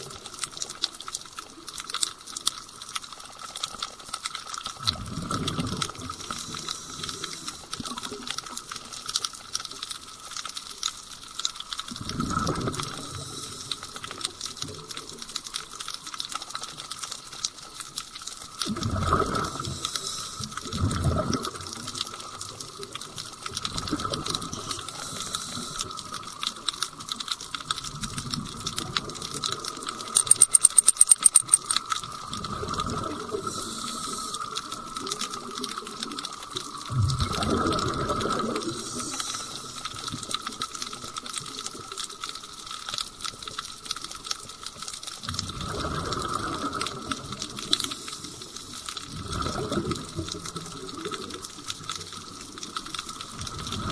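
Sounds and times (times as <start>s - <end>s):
crackling clicks: 0.0s - 53.8s
regulator exhaust bubbles underwater: 4.8s - 8.0s, 12.0s - 13.4s, 18.7s - 19.9s, 20.6s - 22.0s, 27.8s - 39.2s, 45.2s - 48.2s, 49.0s - 51.5s
sharp high ticks: 30.0s - 31.8s.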